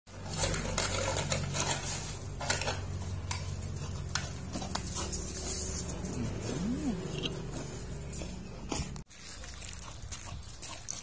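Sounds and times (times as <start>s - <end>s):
dog whining: 6.0s - 8.4s.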